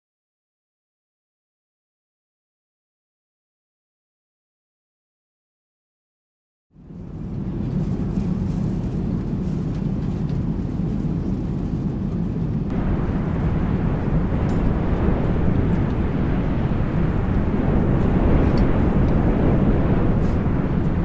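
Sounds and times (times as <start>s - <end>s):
airliner rumble in flight: 6.8s - 21.0s
rushing wind noise: 6.8s - 21.0s.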